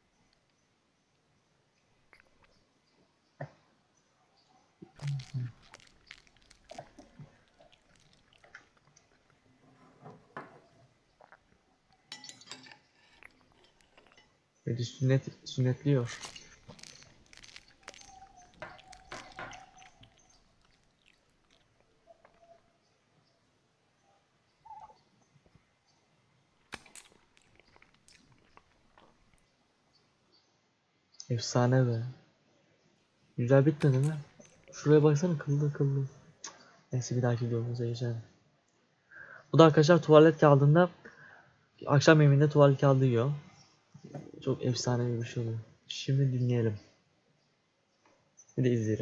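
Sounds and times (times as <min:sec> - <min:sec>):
soft wet clicks: 0:01.8 - 0:02.6, 0:04.8 - 0:09.5, 0:15.6 - 0:22.8, 0:26.5 - 0:29.6, 0:33.7 - 0:35.0.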